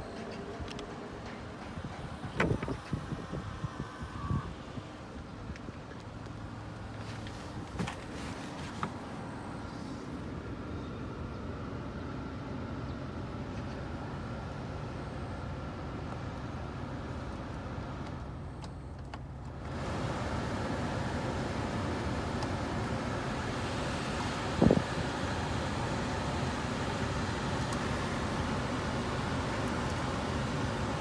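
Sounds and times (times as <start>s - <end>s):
car engine idling: 9.2s - 31.0s.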